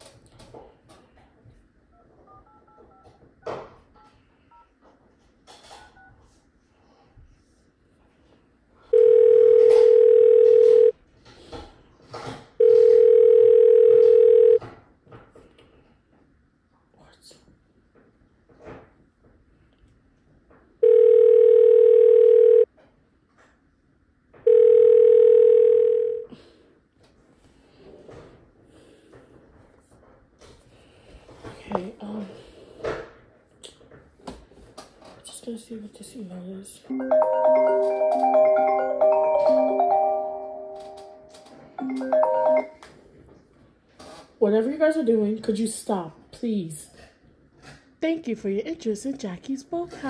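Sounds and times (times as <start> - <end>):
touch-tone dialing beeps: 2.0 - 3.2, 9.0 - 10.9, 12.6 - 14.6, 20.8 - 22.7, 36.9 - 42.8.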